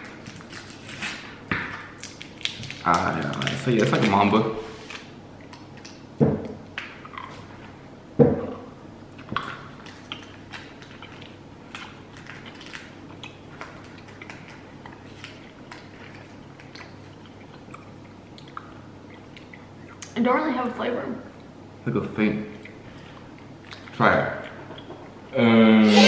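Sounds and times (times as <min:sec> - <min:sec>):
people chewing candy: 0:00.0 - 0:06.0, 0:09.1 - 0:20.2, 0:22.5 - 0:25.3.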